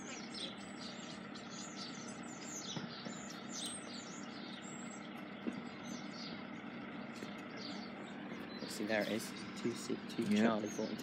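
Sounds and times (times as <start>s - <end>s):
low background hum: 0.0s - 11.0s
small birds chirping: 0.0s - 11.0s.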